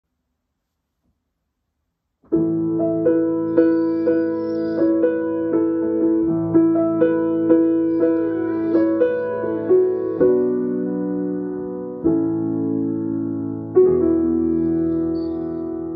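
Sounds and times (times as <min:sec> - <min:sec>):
gentle piano accompaniment: 0:02.2 - 0:15.9.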